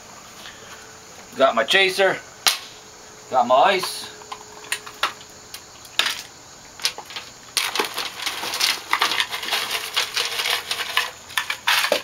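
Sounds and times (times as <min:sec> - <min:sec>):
ice cubes clattering on glass: 0:06.8 - 0:12.0.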